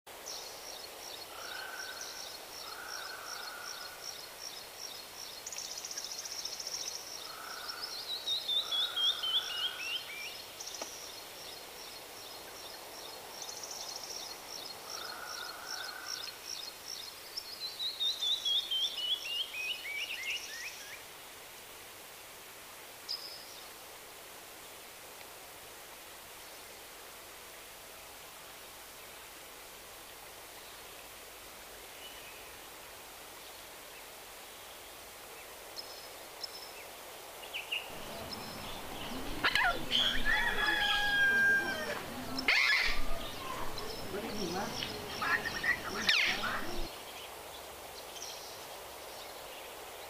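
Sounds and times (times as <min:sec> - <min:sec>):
background hiss: 0:00.1 - 0:50.0
songbirds singing: 0:00.2 - 0:21.0, 0:33.5 - 0:50.0.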